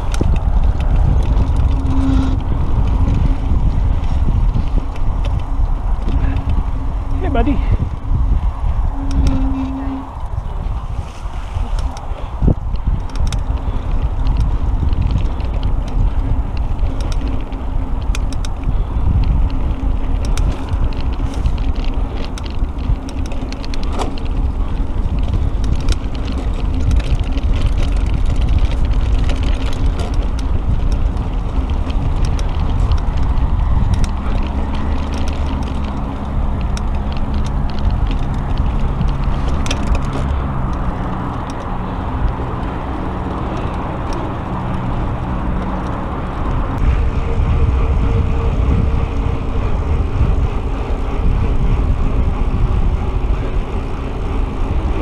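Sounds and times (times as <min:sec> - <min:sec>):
bike rattling clicks: 0:00.0 - 0:55.0
bike tyre rumble on dirt: 0:00.0 - 0:55.0.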